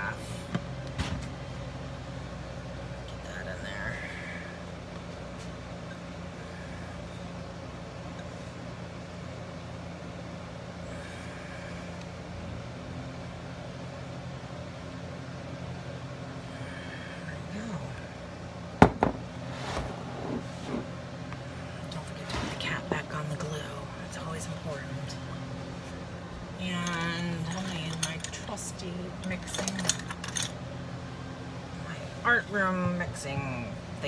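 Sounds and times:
plastic cup knocking on countertop: 0:18.8 - 0:19.2.

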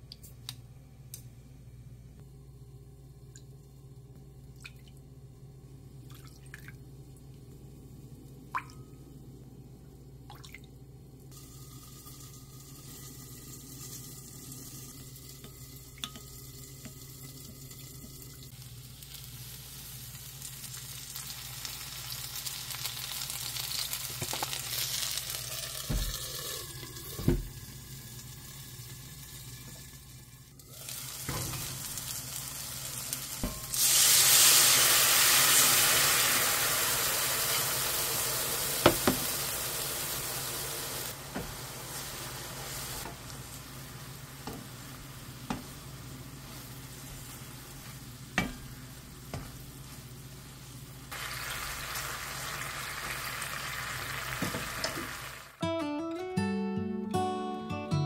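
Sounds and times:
low steady hum: 0:00.0 - 0:22.0
chicken sizzling in a frying pan: 0:11.3 - 0:55.6.

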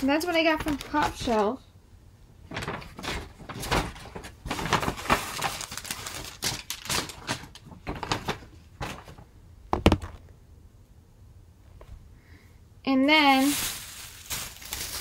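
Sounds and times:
plastic packaging crinkling: 0:00.0 - 0:01.5, 0:02.5 - 0:09.2, 0:13.1 - 0:15.0.

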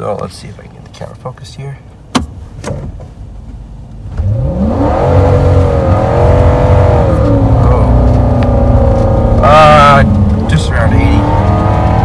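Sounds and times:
pickup engine revving hard: 0:04.2 - 0:12.0.

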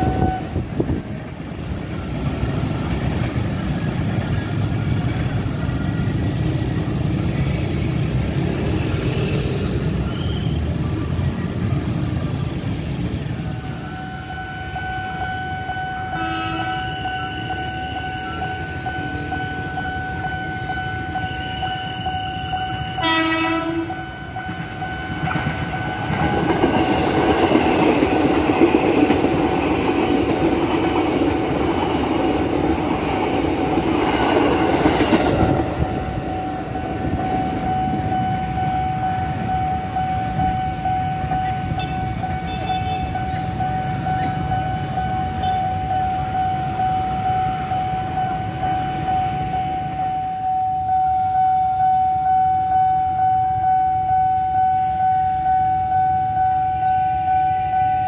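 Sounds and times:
train horn: 0:00.0 - 0:00.6, 0:14.0 - 0:26.4
level-crossing warning tone: 0:00.0 - 0:58.0
train rumbling past: 0:00.0 - 0:58.0.

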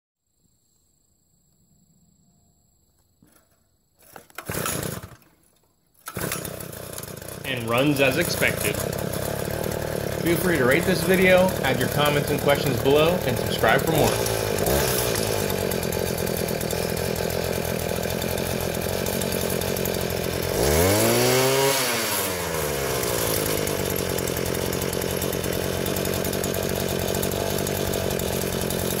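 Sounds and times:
two-stroke engine idling and revving: 0:04.4 - 0:05.2, 0:06.0 - 0:29.0.

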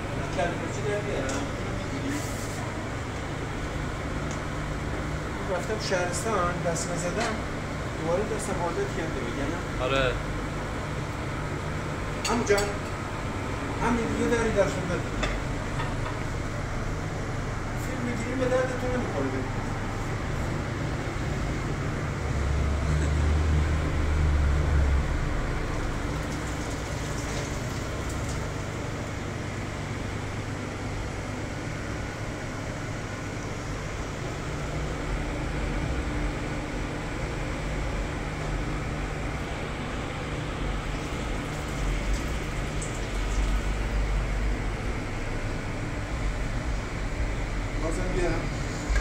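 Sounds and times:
low rumble and hiss: 0:00.0 - 0:49.0.

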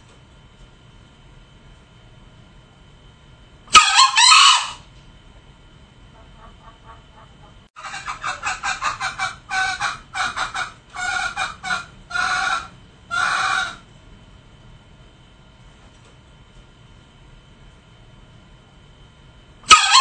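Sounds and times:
junglefowl clucking: 0:03.7 - 0:04.8, 0:06.1 - 0:13.8, 0:19.7 - 0:20.0.

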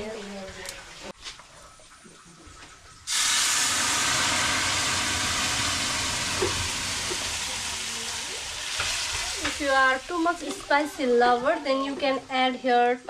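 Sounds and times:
oil popping: 0:03.1 - 0:10.7
hot oil sizzling in a pan: 0:03.1 - 0:12.0.

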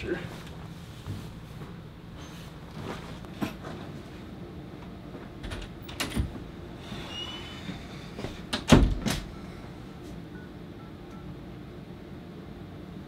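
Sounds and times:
knocks and bumps in a room: 0:07.7 - 0:09.4.

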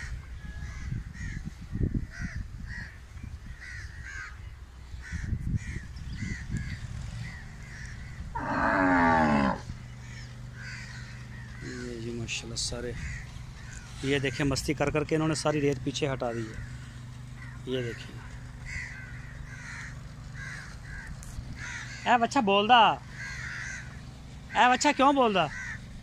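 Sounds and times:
cow lowing: 0:08.3 - 0:09.8.

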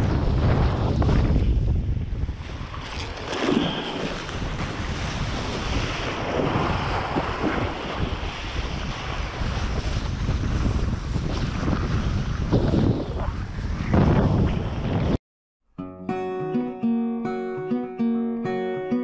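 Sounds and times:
wind buffeting microphone: 0:00.0 - 0:15.2
board splashing over choppy water: 0:02.3 - 0:12.8.

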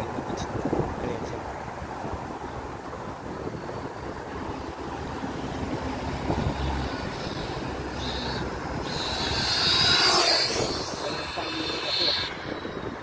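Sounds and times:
wind on microphone: 0:00.0 - 0:13.0
electric motor whining: 0:06.0 - 0:13.0.

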